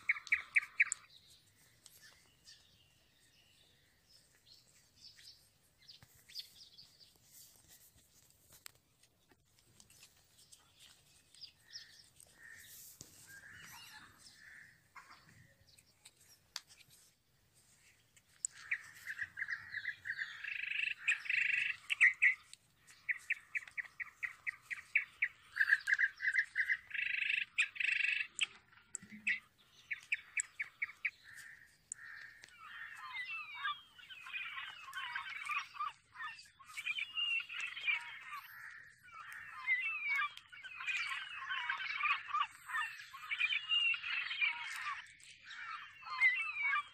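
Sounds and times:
birds chirping: 0.0s - 46.9s
paper rustling and creasing: 7.1s - 13.3s.

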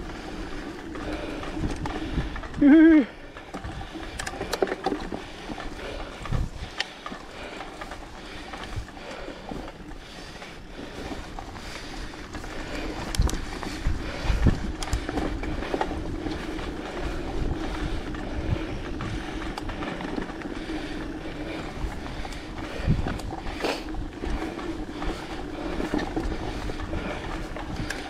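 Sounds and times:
bike tyres rolling on trail: 0.0s - 28.0s
wind on microphone: 5.7s - 6.8s, 11.4s - 28.0s.

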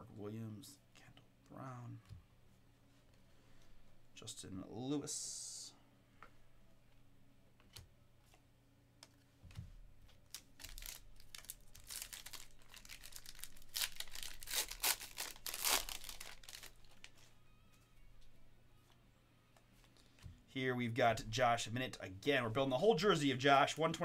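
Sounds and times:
trading cards rustling and clicking: 10.1s - 17.3s.

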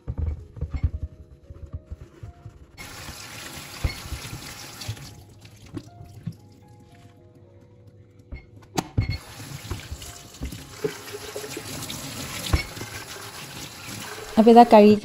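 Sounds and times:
water running: 2.8s - 7.0s, 9.2s - 15.0s
water sloshing and splashing: 2.8s - 7.1s, 9.2s - 14.8s
kettle knocking in sink: 9.2s - 13.2s.

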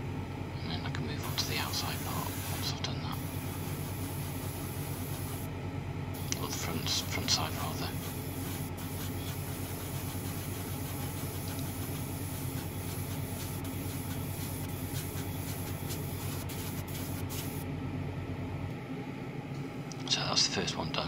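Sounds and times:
airbrush compressor humming: 1.2s - 5.5s, 6.2s - 17.7s
airbrush spraying hiss: 1.2s - 5.5s, 6.2s - 17.6s.

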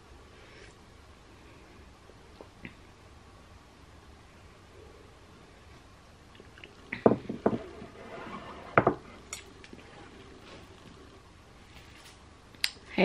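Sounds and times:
ceramic mug knocking on desk: 7.0s - 7.7s.

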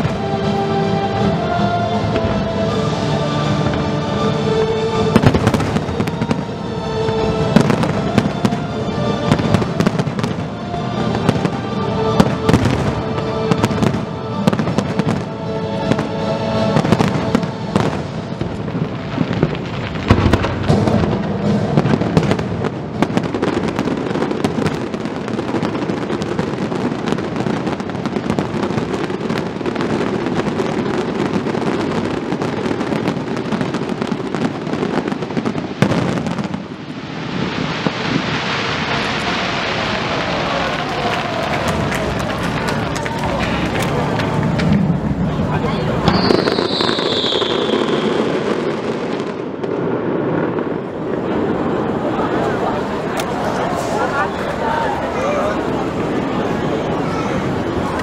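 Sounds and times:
show music: 0.0s - 24.3s, 38.7s - 48.3s
fireworks bursting with bangs: 0.0s - 58.0s
fireworks crackling: 0.0s - 58.0s.

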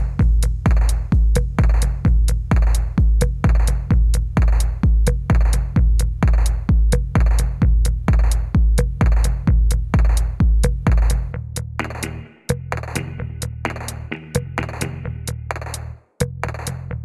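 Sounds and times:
electronic dance music: 11.8s - 15.3s.

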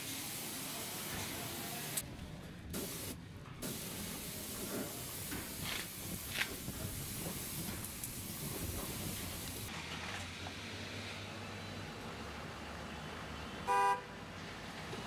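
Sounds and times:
spray gun hissing: 2.8s - 9.7s.

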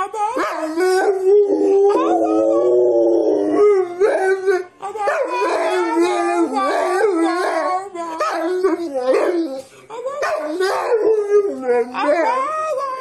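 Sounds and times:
dog howling: 0.4s - 9.6s.

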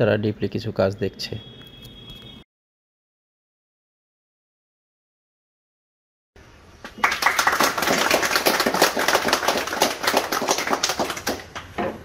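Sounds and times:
people clapping: 6.8s - 11.7s.

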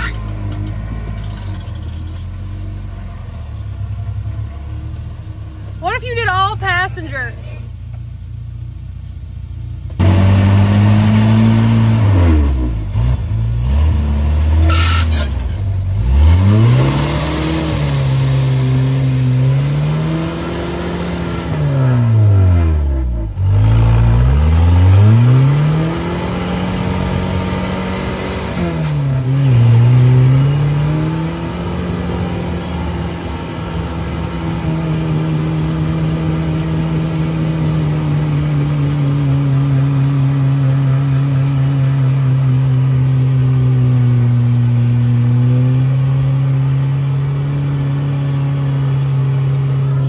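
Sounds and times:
engine revving hard: 10.0s - 50.0s.

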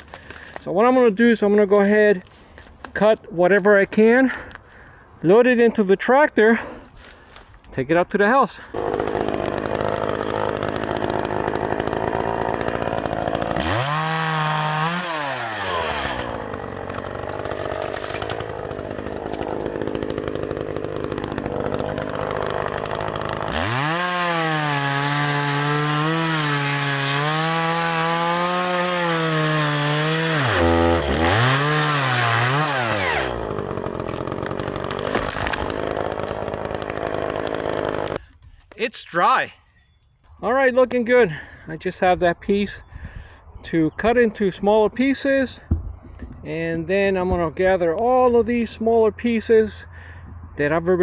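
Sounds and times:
chainsaw cutting wood: 0.0s - 0.6s, 8.7s - 38.5s.

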